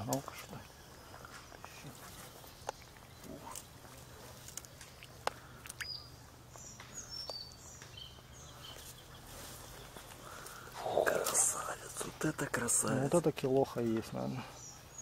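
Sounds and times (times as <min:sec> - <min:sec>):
high bird chirps: 0:04.9 - 0:11.8.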